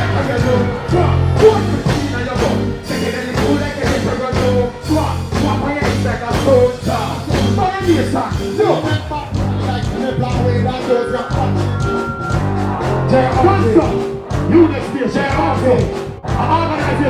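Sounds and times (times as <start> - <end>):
person singing: 0.0 - 12.1
dancehall music with heavy bass: 0.0 - 17.0.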